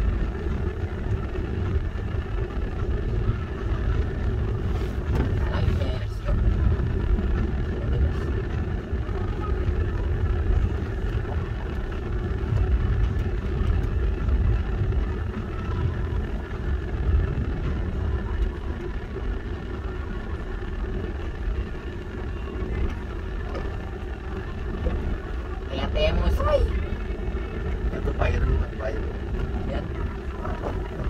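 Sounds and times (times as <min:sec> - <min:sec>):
car engine and road rumble: 0:00.0 - 0:31.0.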